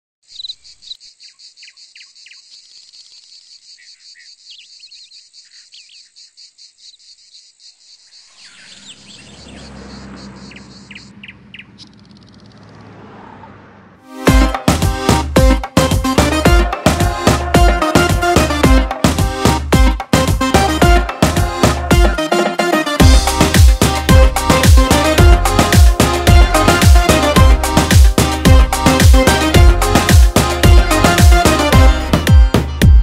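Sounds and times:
birds chirping: 0.2 - 14.0
insects chirring: 0.3 - 12.6
low vehicle engine rumble: 8.6 - 14.1
music: 14.0 - 33.0.

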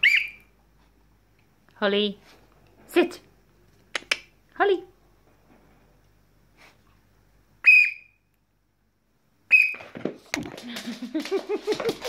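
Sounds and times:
short sharp whistle blasts: 7.6 - 8.2, 9.5 - 9.8
scuffling and clicking: 9.8 - 12.0.

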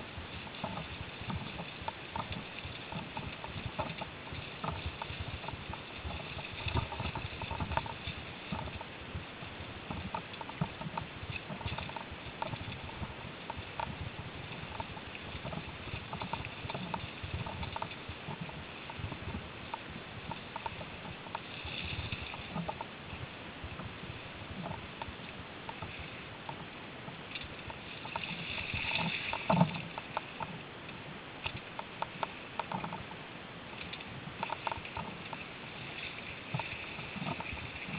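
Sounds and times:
clicks and rattles: 0.5 - 8.9, 14.7 - 19.1, 27.3 - 30.6, 31.4 - 33.0, 33.8 - 37.9.

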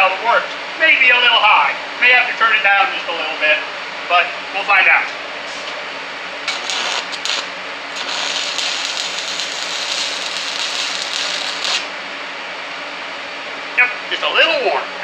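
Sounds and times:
welding arc crackling: 6.4 - 12.0.

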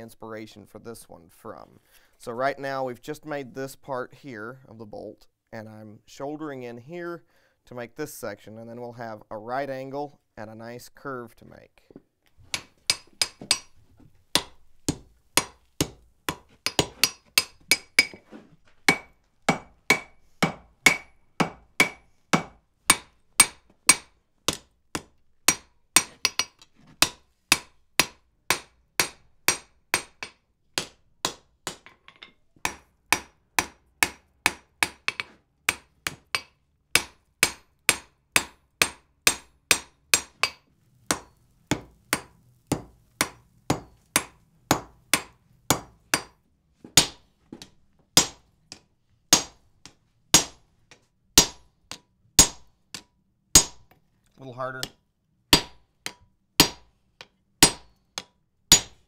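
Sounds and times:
hammer striking hot iron on anvil: 12.5 - 18.2, 18.9 - 46.4, 47.0 - 50.6, 51.4 - 53.9, 55.5 - 56.9, 57.6 - 59.0.

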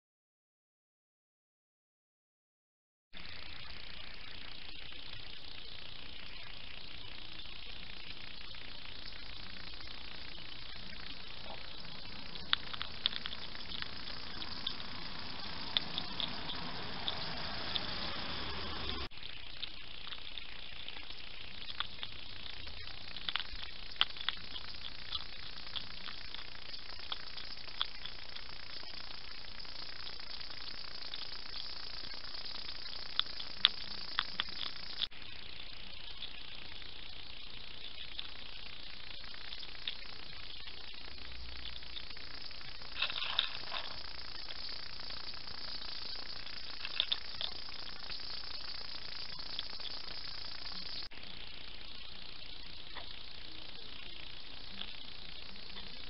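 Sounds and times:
steady hiss: 3.2 - 56.0
hedgehogs crunching and chewing food: 3.3 - 56.0
faint clicks: 8.8 - 35.1, 39.1 - 51.1.

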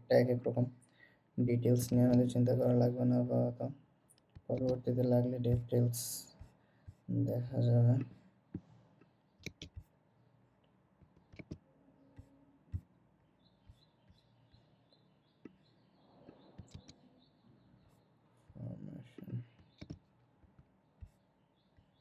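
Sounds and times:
mouse and keyboard clicks: 4.1 - 5.8, 9.4 - 9.9, 11.0 - 11.6, 16.3 - 17.0, 19.2 - 21.2.

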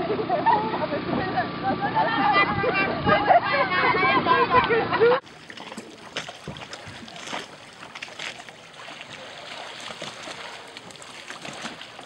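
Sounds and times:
water splashing and lapping: 5.1 - 12.0.

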